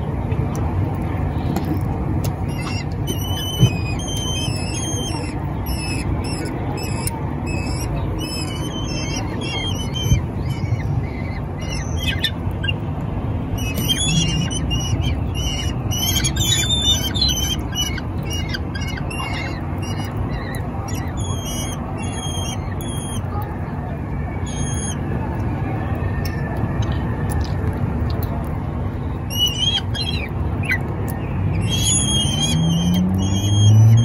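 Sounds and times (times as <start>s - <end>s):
low background rumble: 0.0s - 34.0s
chicks giving shrill begging calls: 2.4s - 12.8s, 13.5s - 23.3s, 29.3s - 30.9s, 31.5s - 34.0s.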